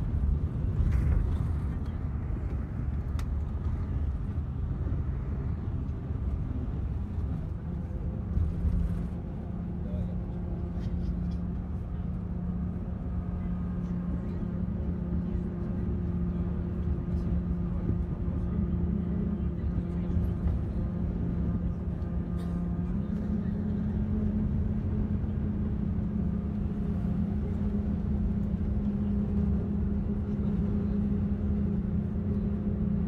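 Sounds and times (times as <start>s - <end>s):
engine hum: 0.0s - 33.0s
road noise rumble: 0.0s - 33.0s.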